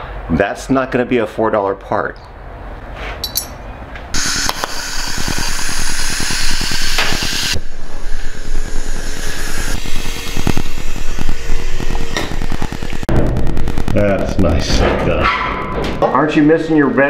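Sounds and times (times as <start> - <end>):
welding arc crackle and hiss: 4.2 - 15.1.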